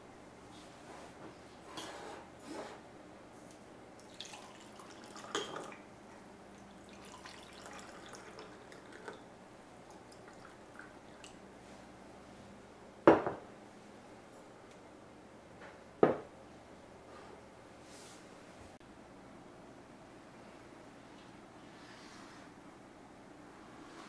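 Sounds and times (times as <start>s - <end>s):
small drips: 4.0s - 5.9s, 6.5s - 11.4s
tea pouring into cups: 4.0s - 5.9s, 6.5s - 11.4s.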